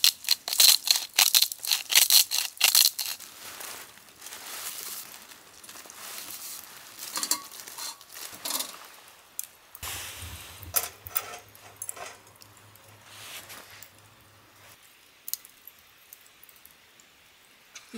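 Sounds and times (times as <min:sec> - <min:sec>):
plastic glove crinkling: 0:00.0 - 0:14.8
wire grill basket clinking: 0:07.0 - 0:08.8, 0:10.2 - 0:12.9.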